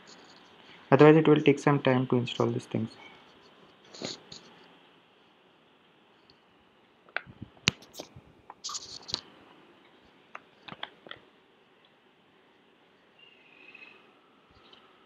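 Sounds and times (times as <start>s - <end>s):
faint room hiss: 0.0s - 15.0s
sharp clicks and crackles: 7.1s - 9.3s, 10.3s - 11.2s.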